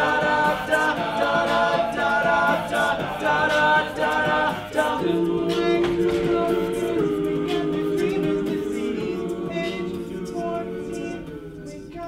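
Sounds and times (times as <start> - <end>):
men's a cappella group singing: 0.0 - 12.0.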